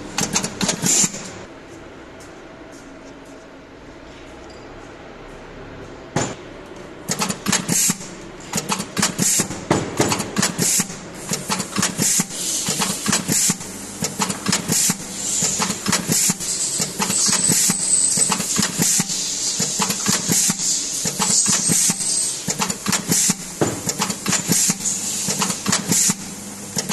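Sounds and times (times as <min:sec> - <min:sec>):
machine clacking and rattling: 0:07.1 - 0:26.2.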